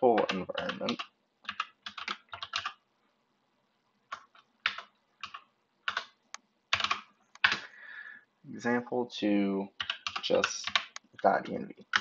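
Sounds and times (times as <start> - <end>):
computer keyboard keystrokes: 0.2 - 2.8, 4.1 - 7.6, 9.8 - 12.0.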